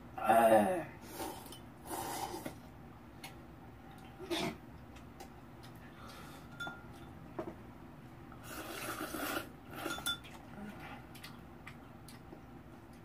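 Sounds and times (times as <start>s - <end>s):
wet eating sounds: 8.4s - 13.0s
utensils clinking against a bowl: 9.7s - 10.4s.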